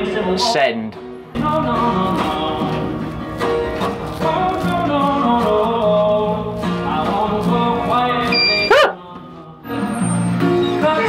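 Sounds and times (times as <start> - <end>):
guitar playing: 1.0 - 9.0
person singing: 1.4 - 3.0, 4.1 - 10.0.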